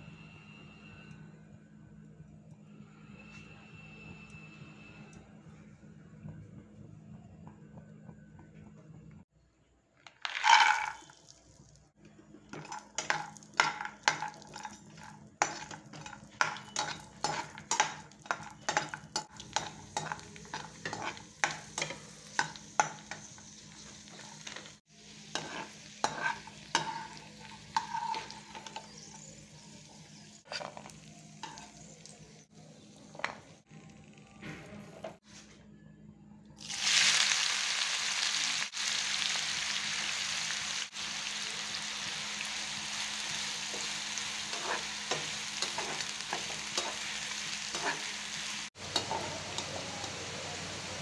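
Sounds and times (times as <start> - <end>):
nuts sizzling in hot fat: 10.2 - 11.8, 12.5 - 34.2, 36.6 - 51.0
spatula scraping pan: 12.5 - 29.5, 30.4 - 32.0, 43.7 - 49.8.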